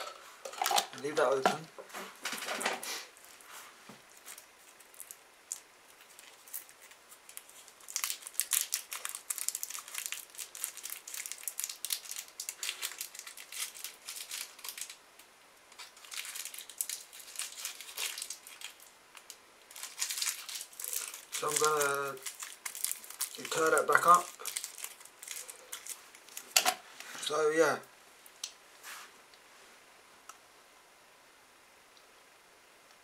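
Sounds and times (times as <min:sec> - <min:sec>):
candy wrapper crinkling: 0:00.0 - 0:01.4, 0:04.1 - 0:26.6.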